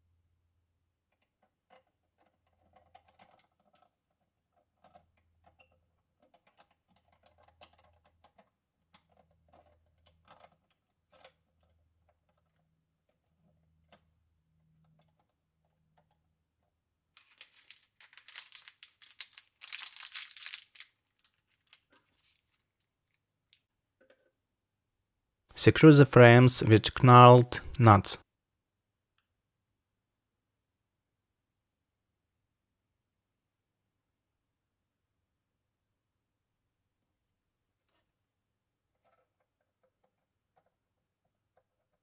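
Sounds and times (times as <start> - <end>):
plastic bag crinkling: 17.2 - 22.6.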